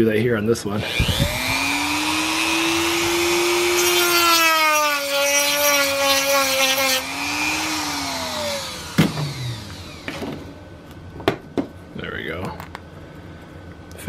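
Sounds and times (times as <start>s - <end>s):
rotary tool whining and grinding: 0.8s - 10.6s.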